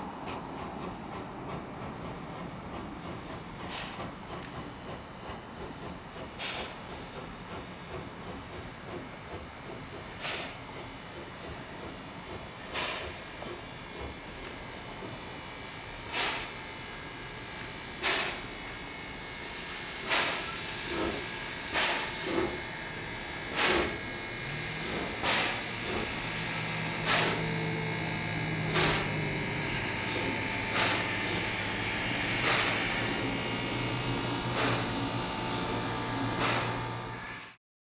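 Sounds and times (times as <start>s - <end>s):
continuous steam hiss: 0.0s - 22.6s, 23.3s - 27.6s
steam locomotive puffs: 0.0s - 37.1s.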